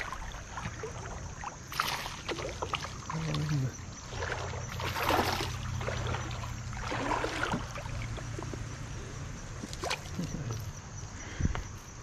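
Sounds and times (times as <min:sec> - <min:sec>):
water splashing: 0:00.0 - 0:10.6.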